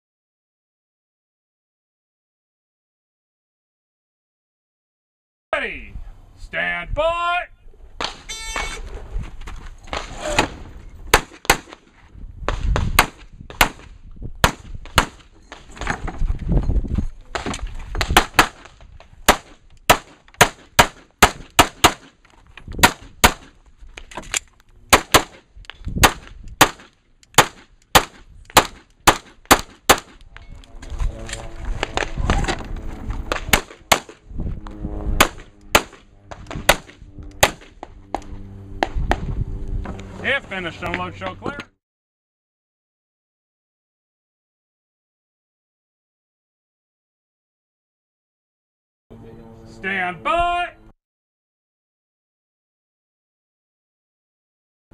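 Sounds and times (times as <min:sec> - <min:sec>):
pistol shots: 0:19.3 - 0:22.1, 0:24.9 - 0:25.4, 0:26.0 - 0:30.2, 0:33.3 - 0:34.2, 0:35.2 - 0:37.8.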